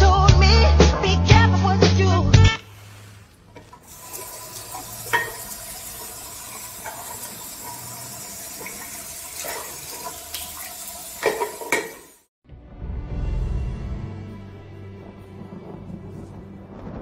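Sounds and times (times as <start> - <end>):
water running into basin: 2.6 - 12.3.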